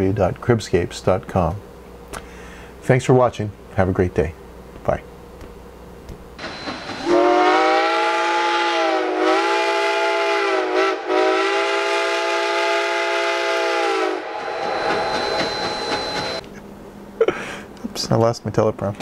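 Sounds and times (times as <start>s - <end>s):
train whistle blast: 6.4s - 16.4s.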